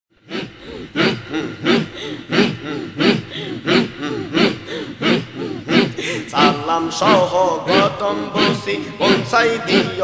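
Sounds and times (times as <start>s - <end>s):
voices chanting rhythmically: 0.2s - 10.0s.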